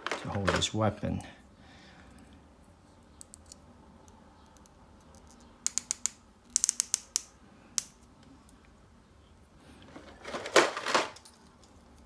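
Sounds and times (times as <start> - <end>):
plastic parts clicking together: 4.6 - 7.9.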